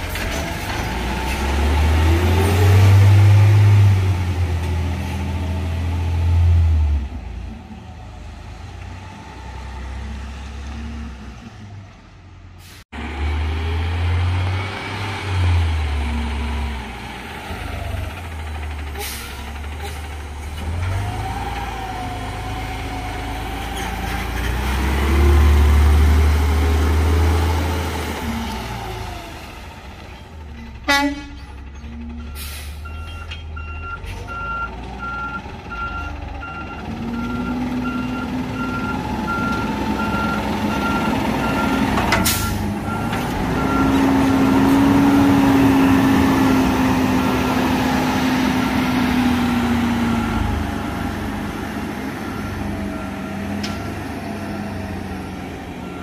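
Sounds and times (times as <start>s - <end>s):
diesel engine revving: 0.0s - 56.0s
air brake hiss: 12.6s - 12.8s, 32.4s - 32.8s.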